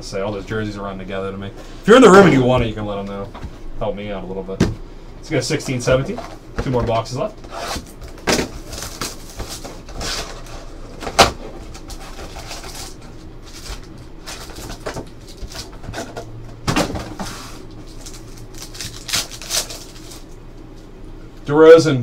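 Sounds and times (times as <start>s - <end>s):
packaging crinkling and snapping: 8.0s - 10.5s, 11.1s - 16.2s, 17.7s - 20.4s
wrapper tearing open: 17.8s - 20.4s.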